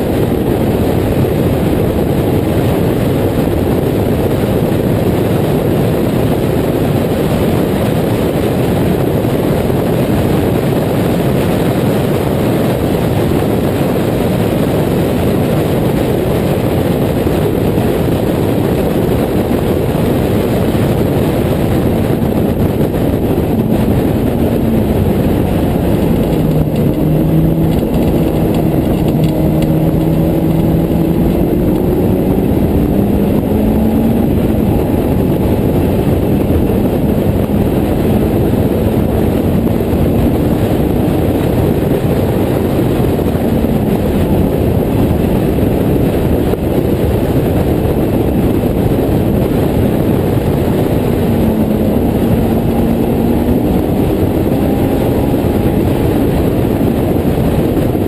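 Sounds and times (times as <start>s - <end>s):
wind and road noise: 0.0s - 58.0s
racing car engine revving: 20.8s - 41.8s, 49.4s - 57.9s.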